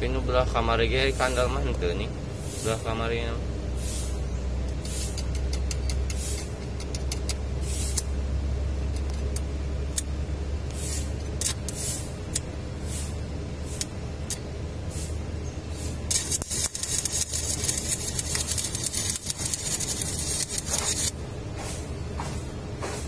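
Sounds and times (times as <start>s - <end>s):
steady low hum: 0.0s - 23.0s
welding arc crackling: 10.7s - 21.3s.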